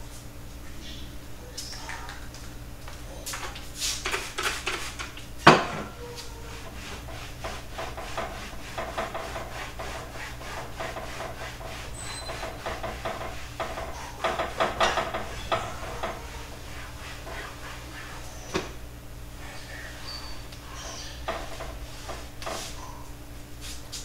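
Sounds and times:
dishes clinking and knocking: 0:05.4 - 0:06.0, 0:12.1 - 0:16.5
cloth rubbing over shelf: 0:06.2 - 0:18.9, 0:19.8 - 0:22.9.

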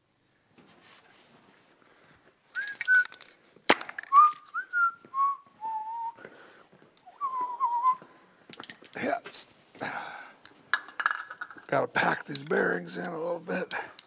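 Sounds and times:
person whistling a tune: 0:02.6 - 0:03.2, 0:04.1 - 0:06.2, 0:07.1 - 0:08.0.

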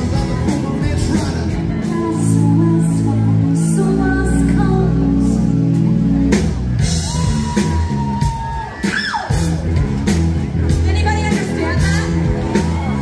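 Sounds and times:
person singing: 0:00.0 - 0:05.9
live rock band over loudspeakers: 0:00.0 - 0:13.0.

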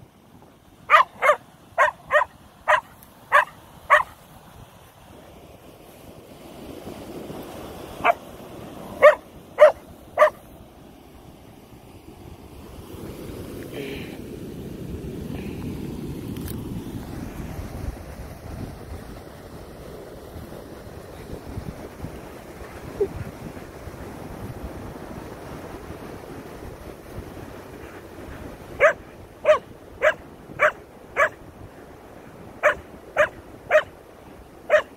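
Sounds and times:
dog barking: 0:00.9 - 0:04.2, 0:08.0 - 0:08.2, 0:09.0 - 0:10.4, 0:28.8 - 0:31.4, 0:32.6 - 0:33.9, 0:34.7 - 0:34.9.

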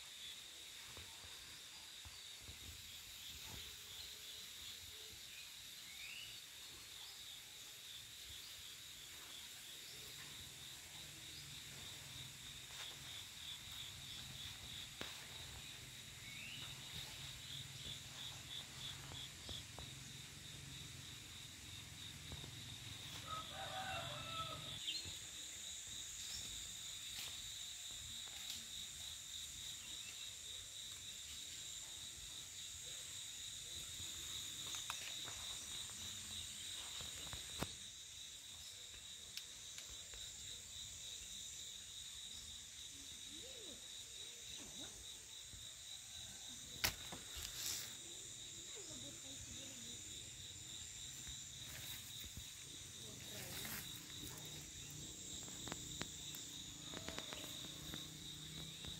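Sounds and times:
insect chorus trilling: 0:00.0 - 0:58.9
faint rooster crowing: 0:23.0 - 0:24.9, 0:56.7 - 0:58.0.

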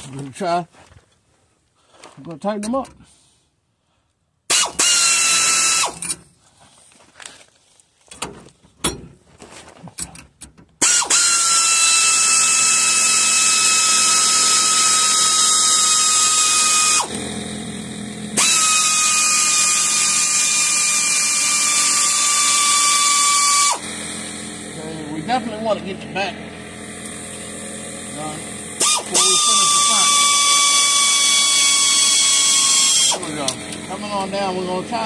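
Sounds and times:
pneumatic air ratchet whirring: 0:04.5 - 0:06.3, 0:10.8 - 0:24.8, 0:26.6 - 0:34.4.

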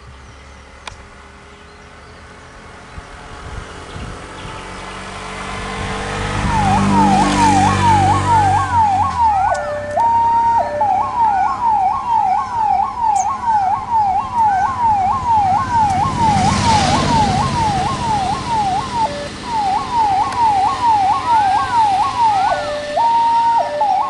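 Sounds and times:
rush of vehicle noise: 0:00.0 - 0:24.0
ambulance siren wailing: 0:05.7 - 0:24.0
two-tone siren: 0:05.8 - 0:24.0.

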